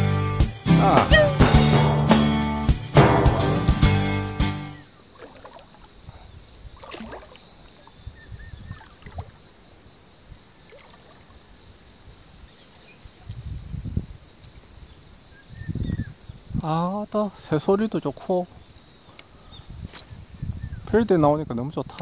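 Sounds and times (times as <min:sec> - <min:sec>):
faint bird chirps: 0:04.7 - 0:10.0, 0:14.8 - 0:16.6, 0:18.3 - 0:21.0
water lapping and sloshing: 0:04.9 - 0:13.3.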